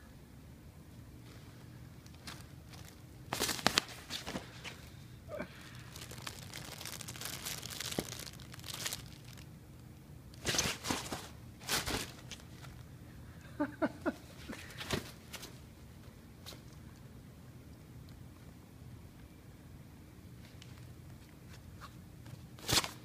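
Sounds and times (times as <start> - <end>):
nylon fabric rustling and crinkling: 1.2 - 4.9, 5.7 - 9.5, 10.4 - 12.8.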